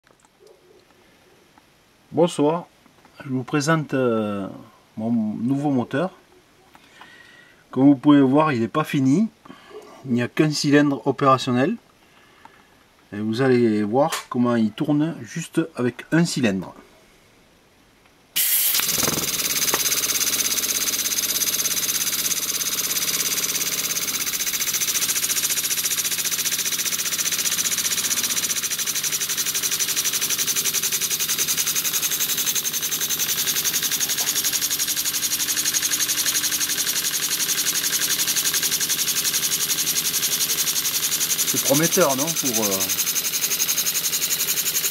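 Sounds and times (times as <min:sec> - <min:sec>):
model steam engine running: 0:18.4 - 0:44.9.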